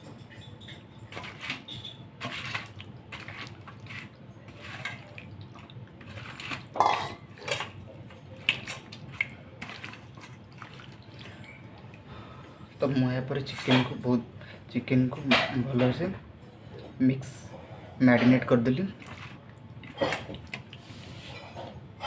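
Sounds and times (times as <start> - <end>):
wet squelching of meat by hand: 8.4 - 12.0.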